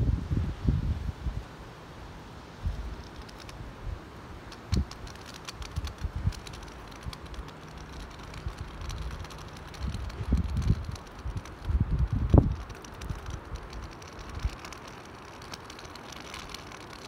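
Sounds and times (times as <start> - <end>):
wind thumps on microphone: 0.0 - 1.4, 2.6 - 4.0, 4.6 - 14.8
raindrops ticking: 4.5 - 17.0.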